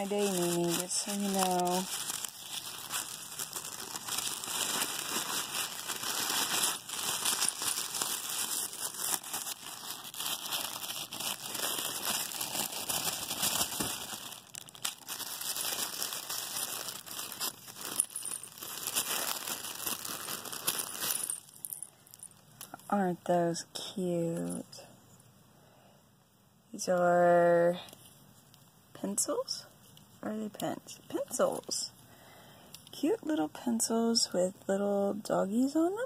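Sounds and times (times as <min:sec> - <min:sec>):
tissue paper crinkling: 0:00.0 - 0:21.8.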